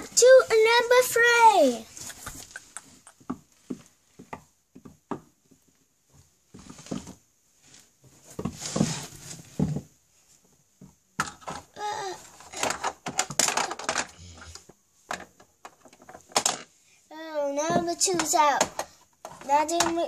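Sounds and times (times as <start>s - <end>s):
plastic toys knocking: 11.2s - 11.8s, 12.4s - 16.7s, 17.6s - 20.0s.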